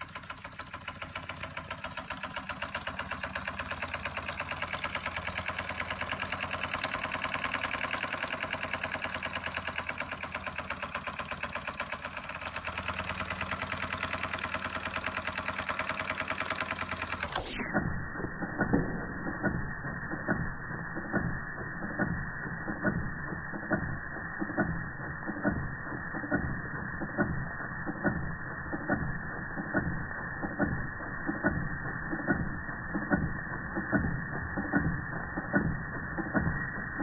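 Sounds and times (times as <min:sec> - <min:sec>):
toy steam engine clicking: 0:00.0 - 0:17.6.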